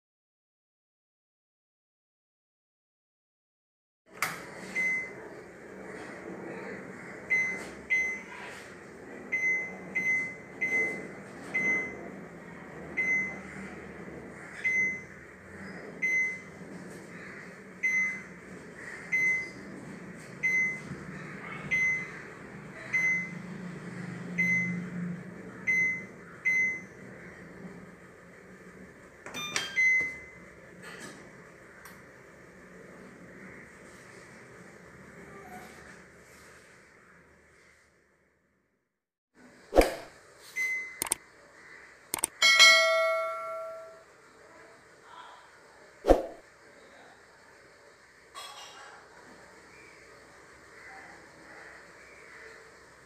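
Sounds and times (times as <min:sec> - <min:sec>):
washing machine beeping: 0:04.2 - 0:05.8, 0:07.2 - 0:16.7, 0:17.7 - 0:27.3, 0:29.2 - 0:30.6, 0:40.5 - 0:41.2, 0:42.2 - 0:44.1
clicks: 0:41.0 - 0:41.2, 0:42.1 - 0:42.4.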